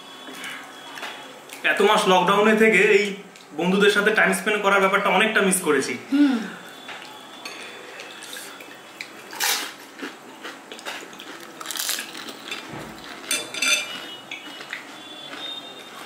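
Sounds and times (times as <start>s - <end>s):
crunching and clattering: 9.3s - 16.0s
spoon scraping glass bowl: 13.3s - 14.2s.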